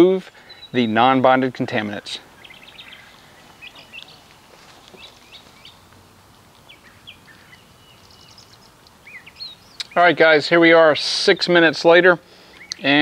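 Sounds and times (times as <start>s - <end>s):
faint outdoor background noise: 0.0s - 13.0s
bird chirps and whistled calls: 0.4s - 1.1s, 2.2s - 4.3s, 6.7s - 10.1s, 12.4s - 12.9s.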